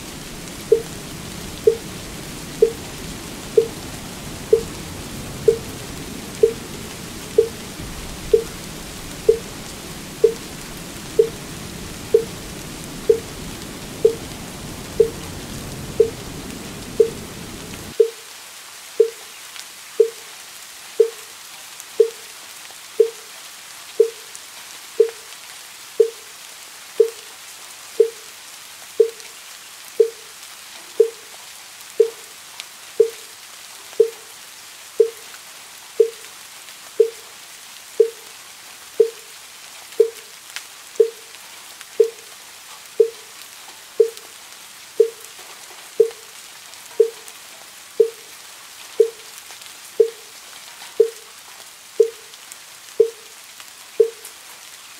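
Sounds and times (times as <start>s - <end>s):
rain patter: 0.0s - 54.9s.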